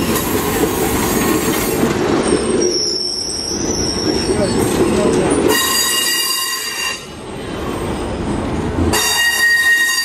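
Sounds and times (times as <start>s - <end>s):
train wheels squealing on rail: 0.0s - 8.1s, 8.9s - 10.0s.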